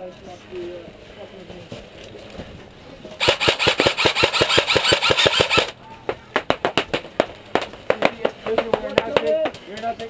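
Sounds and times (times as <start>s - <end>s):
airsoft gun shots: 3.2s - 8.1s.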